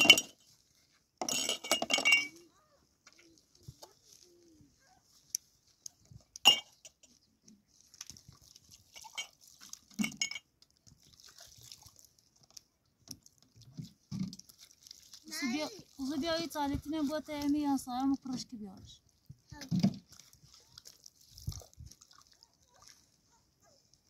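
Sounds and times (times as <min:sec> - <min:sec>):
plastic containers clattering: 0:01.2 - 0:02.4.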